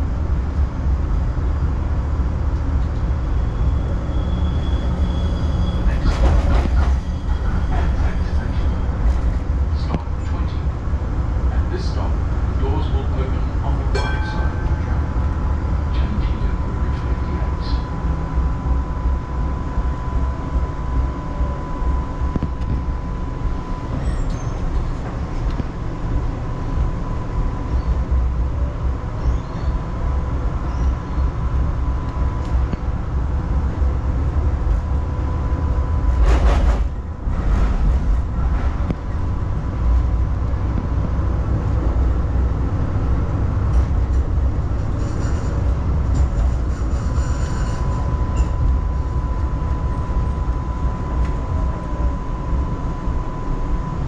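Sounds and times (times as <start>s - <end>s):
tram wheels and motors rumbling: 0.0s - 54.0s
faint steady whine: 46.8s - 54.0s.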